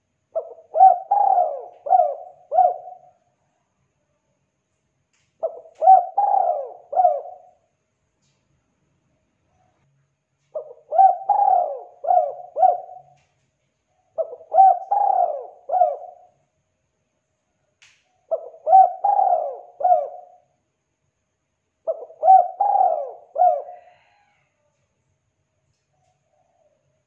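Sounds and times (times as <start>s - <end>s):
dove cooing: 0.3s - 3.2s, 5.4s - 7.7s, 10.5s - 13.4s, 14.1s - 16.4s, 18.3s - 20.4s, 21.8s - 24.5s.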